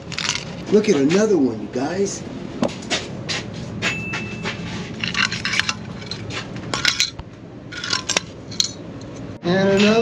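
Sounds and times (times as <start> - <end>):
rat trap scraping and clinking: 0.0 - 0.6, 4.7 - 9.2.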